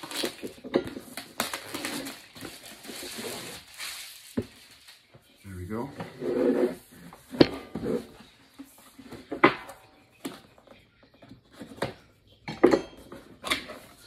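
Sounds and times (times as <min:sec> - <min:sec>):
cardboard and plastic rustling: 0:00.0 - 0:05.3.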